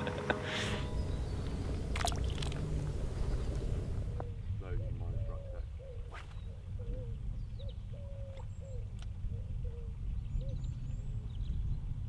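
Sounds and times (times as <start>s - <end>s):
steady low rumble: 0.0s - 5.3s
bird cooing: 0.8s - 10.6s.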